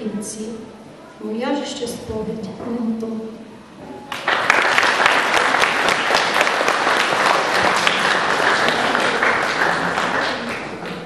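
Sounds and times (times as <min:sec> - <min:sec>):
audience applauding: 0:04.1 - 0:11.0.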